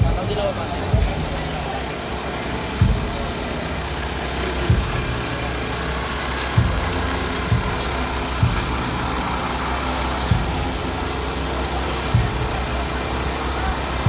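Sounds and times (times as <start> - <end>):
dull low thump: 0.0 - 1.5, 2.8 - 3.5, 4.6 - 5.4, 6.5 - 9.2, 10.3 - 10.9, 12.2 - 12.8
engine idling: 0.0 - 14.0.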